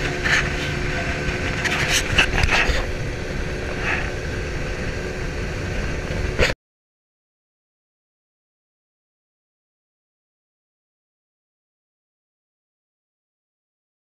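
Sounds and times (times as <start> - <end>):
wind and water rushing: 0.0 - 6.5
outboard motor running: 0.0 - 6.6.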